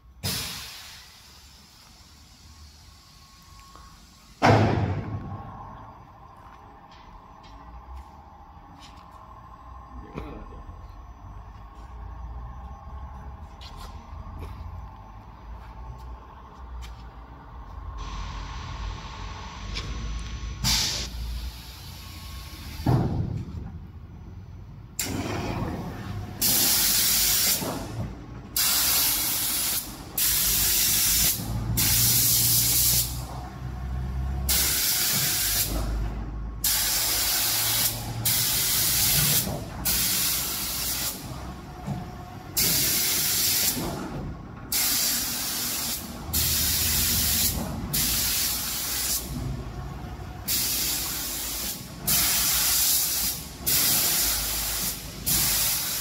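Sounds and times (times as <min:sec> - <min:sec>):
low motor hum: 0:01.9 - 0:26.4
spray gun hissing: 0:28.6 - 0:33.2, 0:39.8 - 0:41.2, 0:42.6 - 0:43.8, 0:44.7 - 0:49.3, 0:50.5 - 0:56.0.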